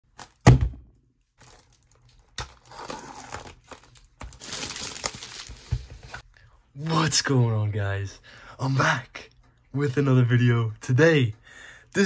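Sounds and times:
plastic wrap crinkling and tearing: 1.4 - 6.2.

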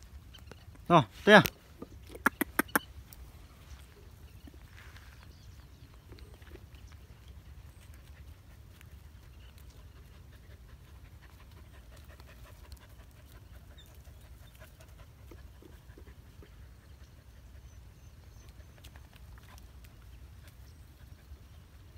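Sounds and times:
dog panting: 7.9 - 19.7.

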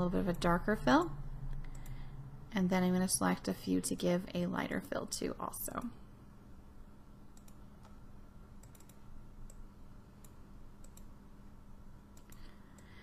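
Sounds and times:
low steady hum: 0.0 - 13.0
computer mouse clicks: 1.6 - 2.0, 7.3 - 8.0, 8.6 - 9.6, 10.2 - 11.2, 12.1 - 12.9.

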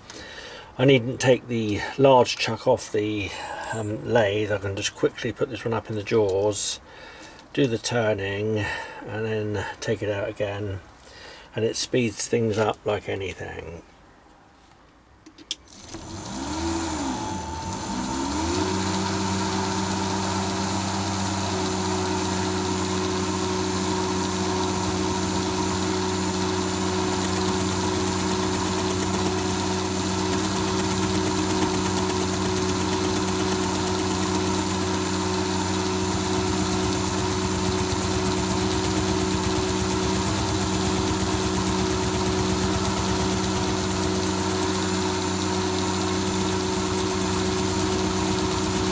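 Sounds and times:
lathe motor whining: 15.6 - 48.9.

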